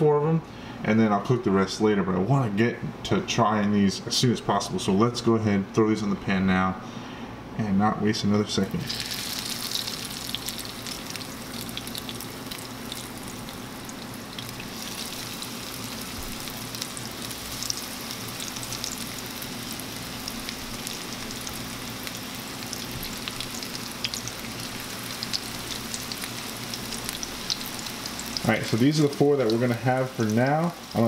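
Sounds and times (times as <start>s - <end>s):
fish sizzling in hot oil: 8.9s - 31.0s.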